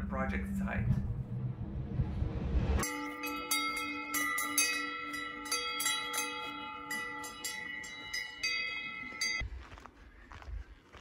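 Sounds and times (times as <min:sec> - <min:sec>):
cowbells clanking: 0:02.8 - 0:09.4.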